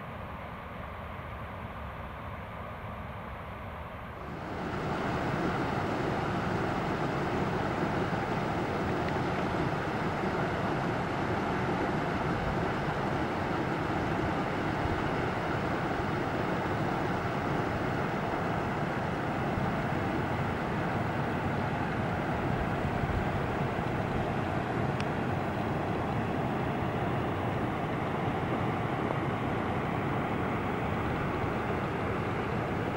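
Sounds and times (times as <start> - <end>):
river rapids rushing: 4.3 - 32.9.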